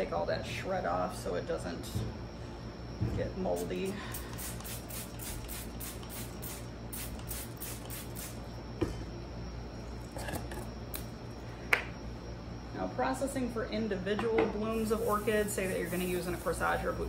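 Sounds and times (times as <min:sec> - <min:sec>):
spray bottle squirting: 0:04.1 - 0:08.4.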